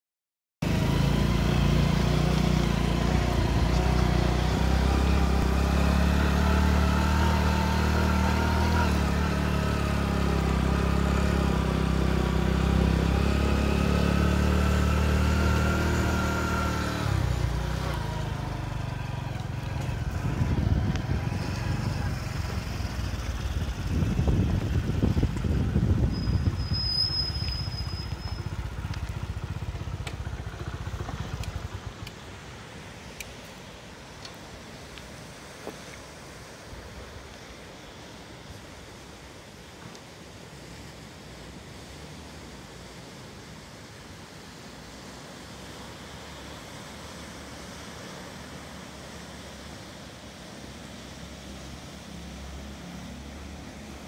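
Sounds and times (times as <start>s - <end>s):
motor engine humming: 0.6s - 33.8s.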